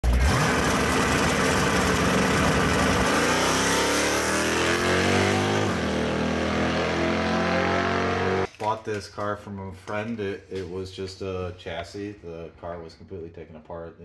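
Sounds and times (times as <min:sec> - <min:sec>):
car engine at full throttle: 0:00.0 - 0:08.5
second car engine: 0:00.0 - 0:08.5.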